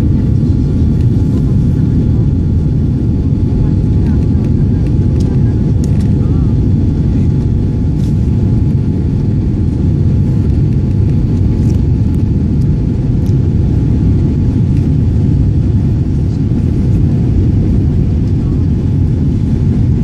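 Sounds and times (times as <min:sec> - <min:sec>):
airplane cabin engine rumble: 0:00.0 - 0:20.0.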